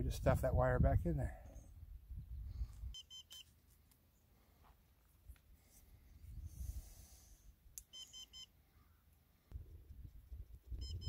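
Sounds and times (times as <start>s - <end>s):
short high beeps: 2.9s - 3.5s, 7.9s - 8.5s, 10.8s - 11.0s.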